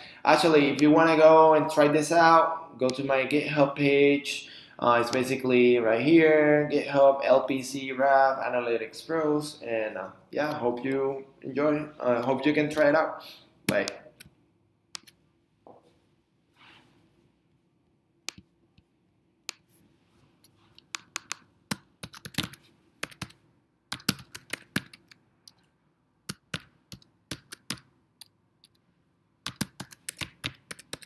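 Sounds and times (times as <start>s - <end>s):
computer keyboard typing: 20.9s - 25.6s, 26.3s - 28.8s, 29.4s - 31.0s.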